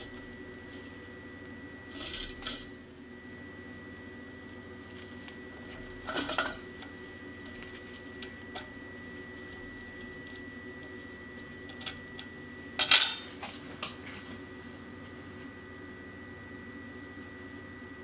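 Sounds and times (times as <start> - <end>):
steady hum: 0.0 - 18.0
wrench clinking on metal: 12.8 - 13.6.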